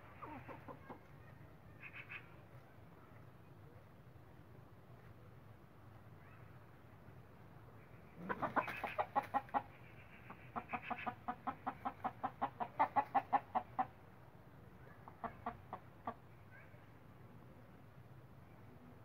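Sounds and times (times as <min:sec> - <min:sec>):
chicken clucking: 0:00.0 - 0:01.2, 0:08.2 - 0:14.0, 0:15.0 - 0:16.2.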